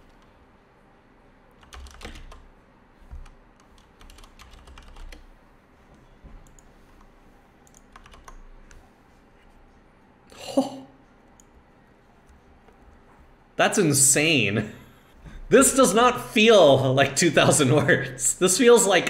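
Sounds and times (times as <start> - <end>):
computer keyboard typing: 1.6 - 2.5, 3.1 - 5.3, 7.6 - 8.8.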